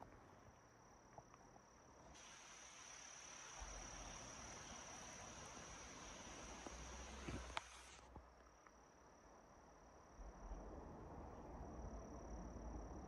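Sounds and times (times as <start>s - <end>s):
high-pitched insect trill: 0.3s - 8.0s.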